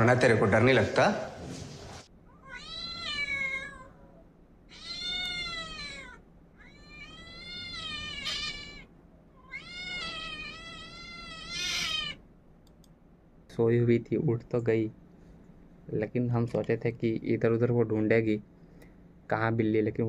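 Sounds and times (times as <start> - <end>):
cat meowing through speakers: 2.4 - 4.0, 4.7 - 12.2.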